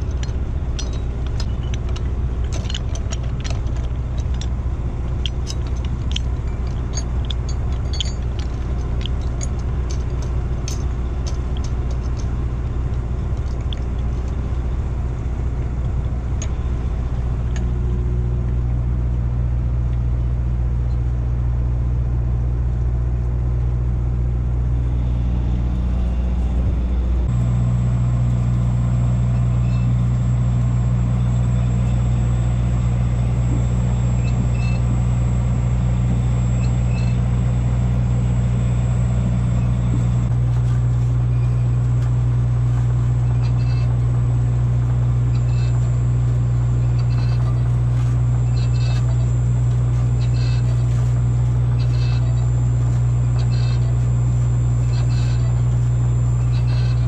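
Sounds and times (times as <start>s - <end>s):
light metallic clinks: 0.0s - 12.5s
boat engine droning: 0.0s - 57.0s
faint high whine: 24.6s - 57.0s.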